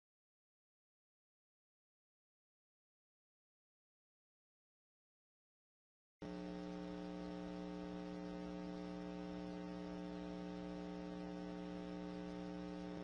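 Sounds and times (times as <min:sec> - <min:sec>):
electrical mains hum: 0:06.2 - 0:13.0.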